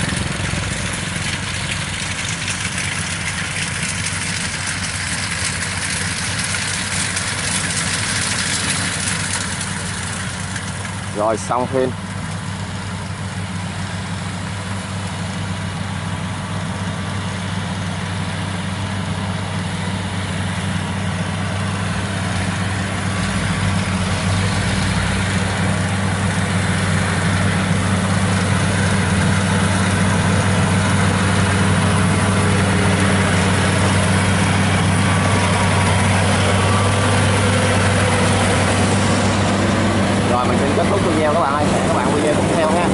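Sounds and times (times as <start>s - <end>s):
combine harvester diesel engine: 0.0s - 42.9s.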